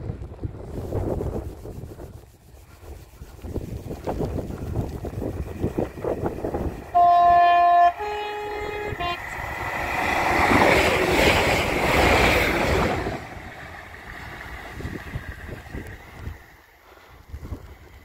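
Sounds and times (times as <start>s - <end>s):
train passing rumble: 0.0s - 18.0s
train two-tone horn: 6.9s - 9.5s.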